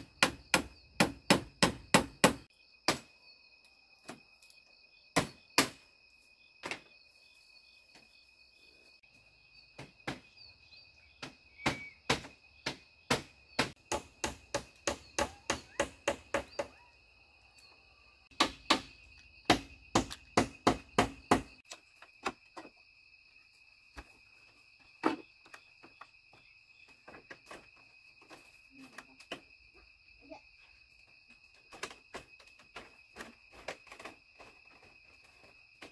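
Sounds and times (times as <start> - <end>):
hand tool striking wood: 0.0 - 3.1, 5.2 - 5.8, 11.2 - 16.8, 18.3 - 22.7
insects droning: 0.0 - 35.9.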